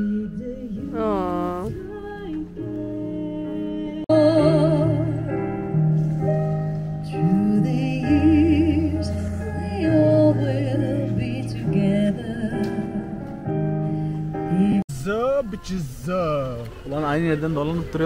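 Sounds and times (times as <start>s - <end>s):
person singing with vibrato: 0.0s - 5.2s
long held bass notes: 0.8s - 14.8s.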